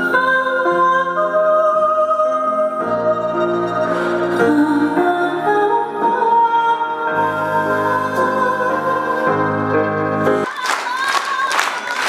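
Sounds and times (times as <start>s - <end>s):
woman singing into a microphone: 0.0s - 12.0s
violin: 2.1s - 10.5s.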